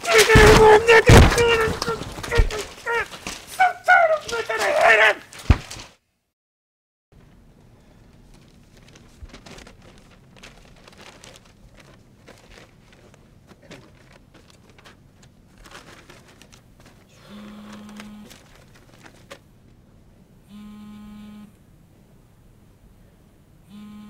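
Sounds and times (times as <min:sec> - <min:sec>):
paper rustling and crinkling: 0:00.0 - 0:06.0, 0:07.2 - 0:19.8
mobile phone ringing: 0:17.2 - 0:18.4.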